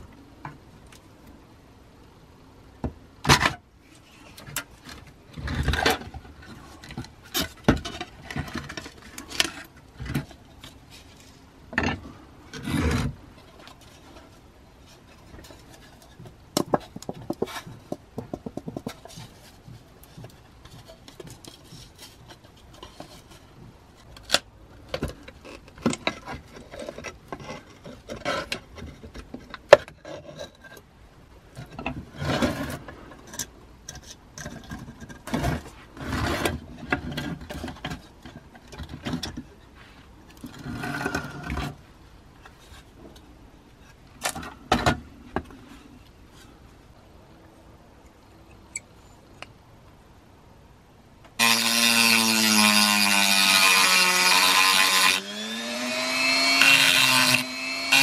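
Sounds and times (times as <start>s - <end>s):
wood scraping and rubbing: 3.9s - 24.2s, 31.6s - 43.1s.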